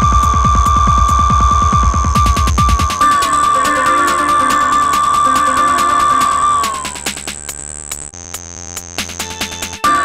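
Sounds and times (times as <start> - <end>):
electronic synth music: 0.0 - 8.3, 8.9 - 10.0
fast ticking percussion: 0.0 - 10.0.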